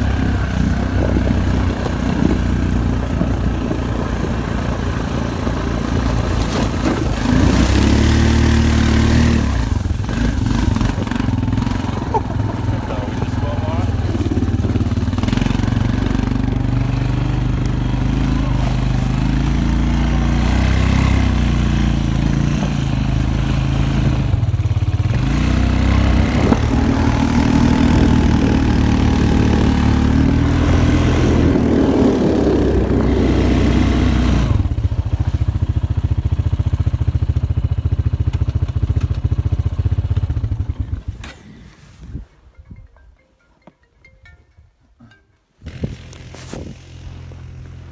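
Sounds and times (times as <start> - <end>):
snowmobile engine running: 0.0 - 37.4, 45.6 - 47.9.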